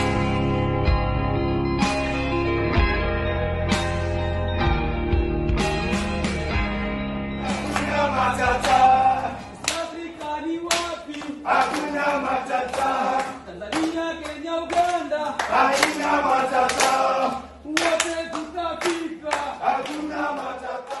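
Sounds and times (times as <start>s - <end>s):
men singing together: 7.4s - 21.0s
hand claps: 7.5s - 21.0s.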